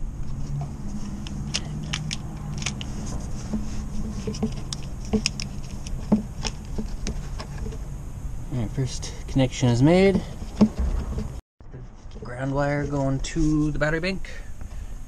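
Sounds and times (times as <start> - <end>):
metal and plastic clicks: 1.2 - 2.9.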